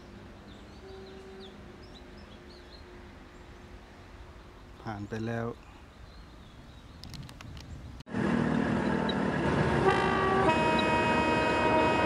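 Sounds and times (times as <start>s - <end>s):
locomotive horn chord: 0.8s - 1.7s, 9.4s - 12.0s
train running noise: 8.1s - 12.0s.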